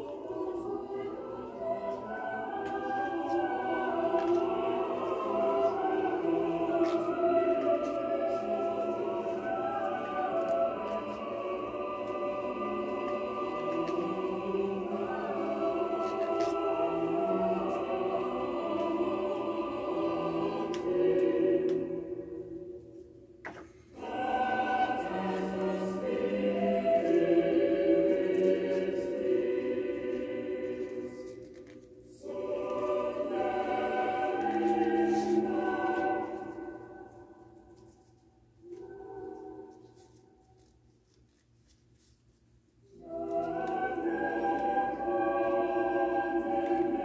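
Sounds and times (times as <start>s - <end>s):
choir singing: 0.0s - 23.2s, 23.9s - 40.7s, 42.8s - 47.0s.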